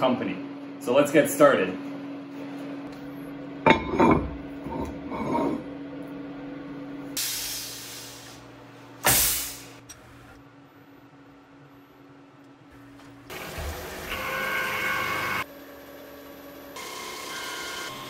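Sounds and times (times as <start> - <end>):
low machine hum: 0.0 - 18.0
compressed air hiss: 7.2 - 8.4, 9.0 - 9.8.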